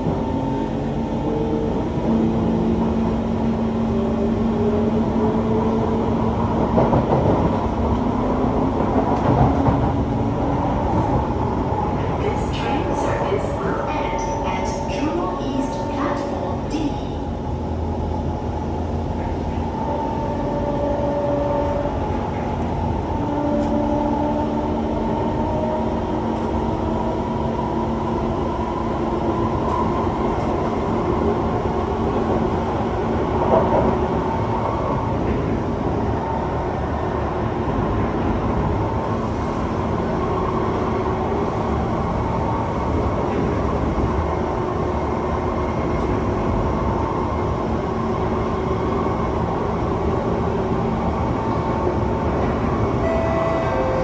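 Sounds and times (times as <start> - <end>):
wheels rumbling on rail: 0.0 - 54.0.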